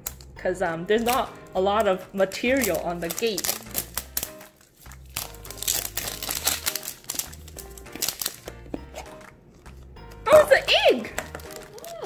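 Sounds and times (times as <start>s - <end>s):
background music: 0.0s - 12.0s
plastic wrapper crinkling and tearing: 2.3s - 9.8s, 11.2s - 12.0s.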